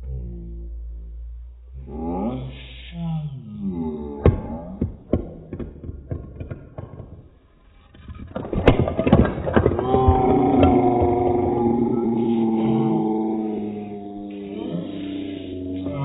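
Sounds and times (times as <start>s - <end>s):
drawn-out low tone: 0.0s - 4.8s, 10.1s - 16.0s
sharp clicks and knocks: 4.3s - 11.6s.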